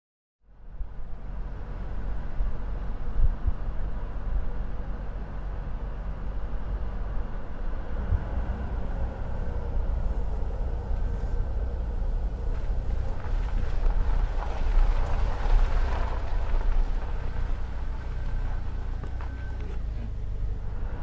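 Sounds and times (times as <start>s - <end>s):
car engine rumble: 0.4s - 21.0s
tyre and wind noise: 2.2s - 4.8s, 7.5s - 21.0s.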